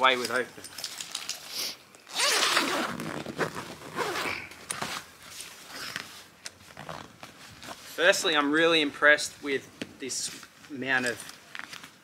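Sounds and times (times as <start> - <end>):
zipper being pulled open: 1.6 - 7.2.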